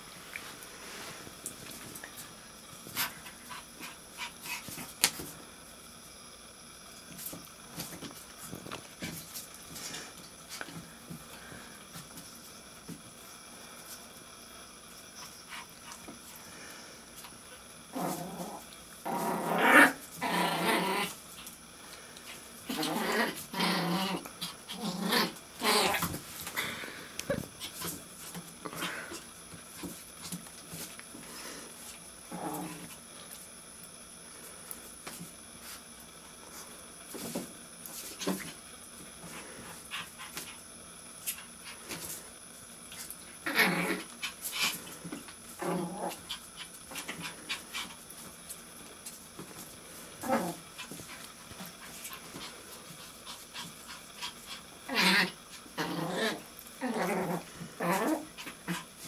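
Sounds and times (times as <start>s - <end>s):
puppy play-growling: 1.6s - 5.3s, 15.1s - 16.4s, 17.1s - 33.5s, 35.0s - 59.0s.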